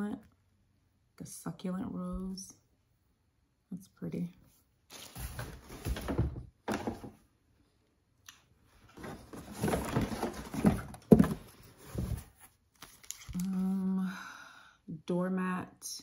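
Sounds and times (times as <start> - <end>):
craft items rustling in cardboard box: 4.9 - 7.1, 8.8 - 13.6.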